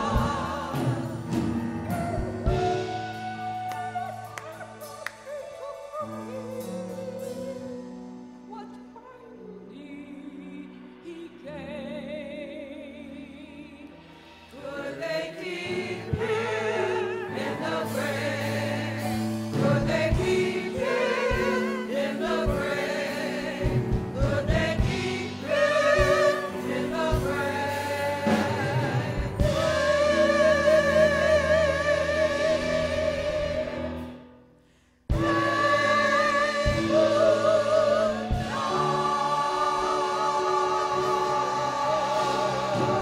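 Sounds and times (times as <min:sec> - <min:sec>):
drums low beats: 0:00.0 - 0:04.3, 0:18.1 - 0:31.6, 0:35.1 - 0:41.5
gospel choir singing: 0:00.0 - 0:08.8, 0:09.6 - 0:34.4, 0:35.1 - 0:43.0.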